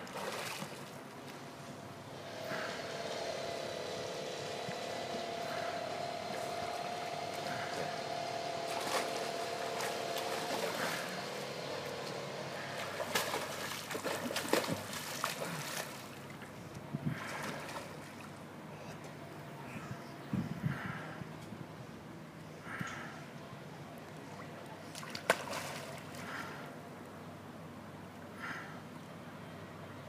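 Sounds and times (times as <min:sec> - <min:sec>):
water lapping: 0:00.0 - 0:01.4, 0:02.1 - 0:03.9, 0:04.5 - 0:19.0, 0:24.1 - 0:26.8
water splashing and sloshing: 0:00.0 - 0:02.8, 0:04.6 - 0:18.6, 0:24.0 - 0:26.8
mechanical hum under water: 0:00.0 - 0:30.0.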